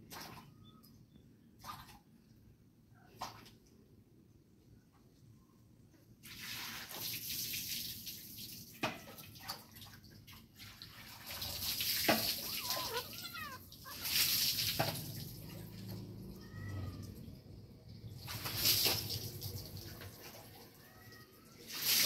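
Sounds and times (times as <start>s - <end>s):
kitten squeaky call: 12.4s - 14.4s.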